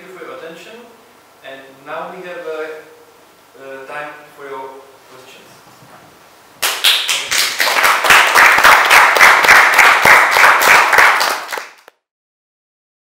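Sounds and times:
audience applauding: 6.6s - 11.9s.

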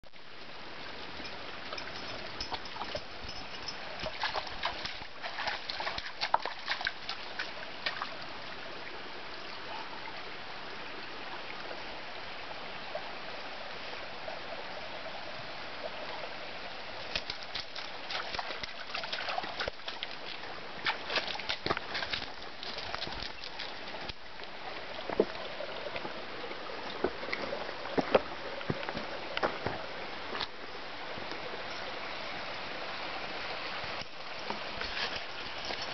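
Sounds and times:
stream trickling over rocks: 0.0s - 35.9s
dogs splashing in water: 2.8s - 8.0s, 17.1s - 23.8s.

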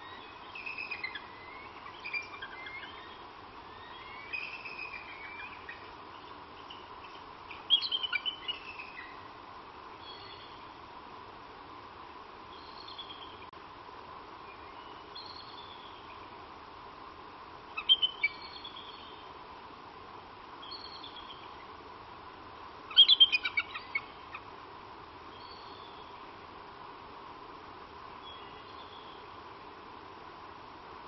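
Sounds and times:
faint high bird calls: 0.0s - 9.2s, 10.0s - 10.8s, 12.5s - 13.5s, 14.5s - 16.3s, 17.8s - 19.3s, 20.6s - 21.7s, 22.9s - 24.5s, 25.3s - 26.2s, 28.2s - 29.4s.

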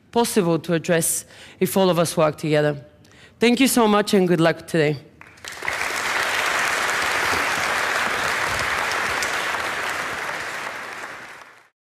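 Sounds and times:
audience applauding: 5.2s - 11.7s.

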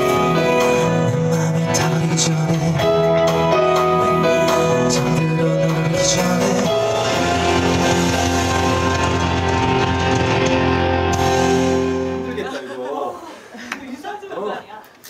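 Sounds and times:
man singing: 0.0s - 8.4s
band playing with guitar: 0.0s - 12.6s.

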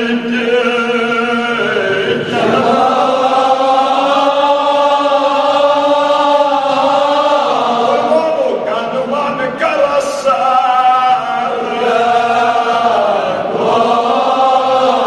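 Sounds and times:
man chanting: 0.0s - 3.0s, 7.9s - 11.8s.

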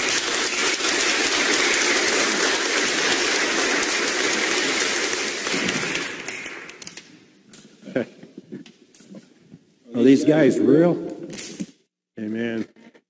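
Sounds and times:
crowd clapping: 0.0s - 7.3s.

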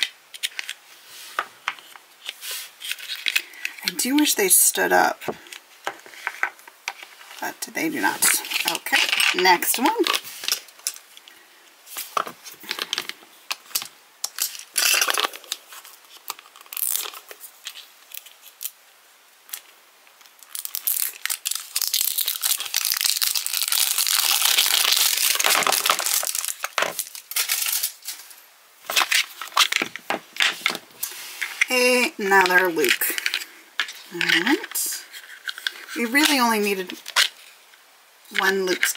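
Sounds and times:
taps and crinkles: 25.3s - 31.6s.

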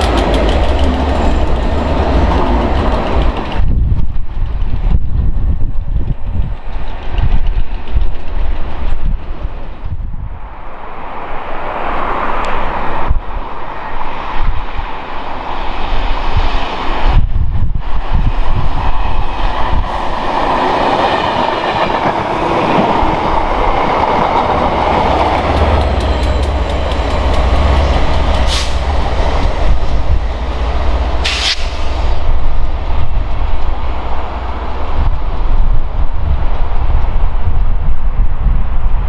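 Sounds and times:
train wheels clicking over rail joints: 0.0s - 9.9s, 19.3s - 33.8s
diesel locomotive engine drone: 0.0s - 39.0s.

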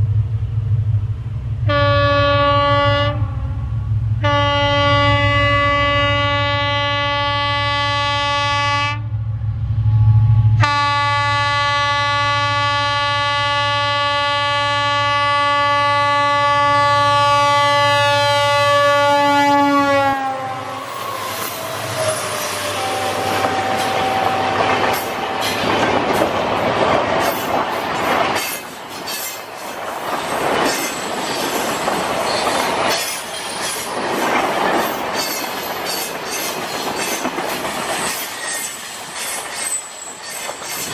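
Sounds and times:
locomotive horn blast: 1.6s - 9.1s, 10.0s - 25.1s
train wheels clattering over rail joints: 23.3s - 40.9s.

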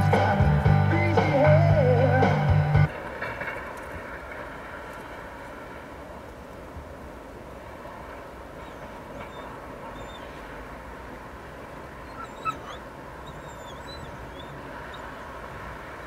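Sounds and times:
outdoor background hiss: 0.0s - 16.0s
dog yelp: 8.6s - 10.4s, 12.0s - 15.2s
dog whining: 8.6s - 10.5s, 12.0s - 15.2s.

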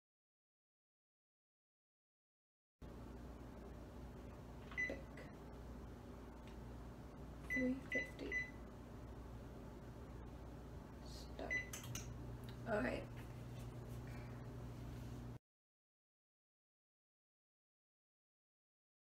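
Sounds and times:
low hum: 2.8s - 15.4s.

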